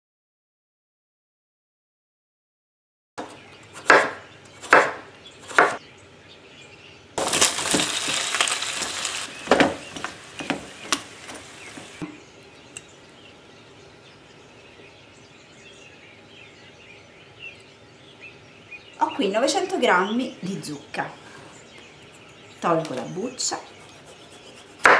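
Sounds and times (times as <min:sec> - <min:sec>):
food sizzling in oil: 0:07.2 - 0:12.0
wooden spoon knocking on pan: 0:09.3 - 0:12.0.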